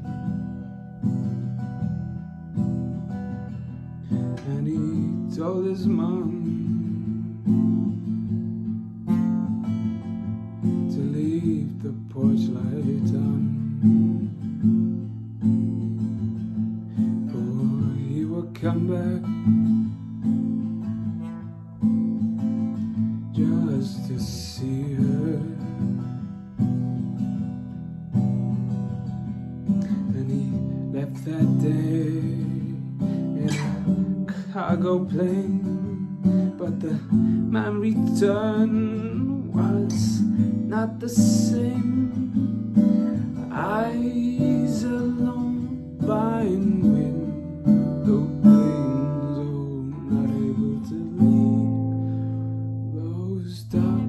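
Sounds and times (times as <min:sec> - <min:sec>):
acoustic guitar strumming: 0:00.0 - 0:54.0
man singing: 0:04.1 - 0:08.0, 0:10.8 - 0:14.4, 0:17.0 - 0:19.8, 0:23.3 - 0:26.2, 0:29.8 - 0:52.1, 0:52.8 - 0:54.0.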